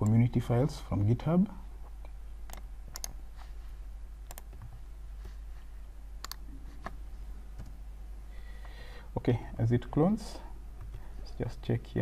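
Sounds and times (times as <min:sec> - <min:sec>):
low electrical hum: 0:00.0 - 0:12.0
mouse and keyboard clicks: 0:04.3 - 0:04.7.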